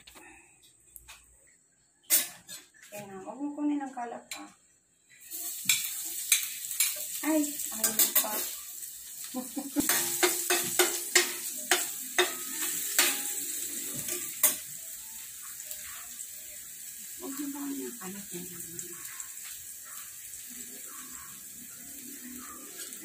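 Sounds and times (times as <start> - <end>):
garlic sizzling in a pan: 5.0 - 23.0
metal spoon clinking against pan: 7.8 - 8.5, 9.8 - 13.4, 14.0 - 14.7.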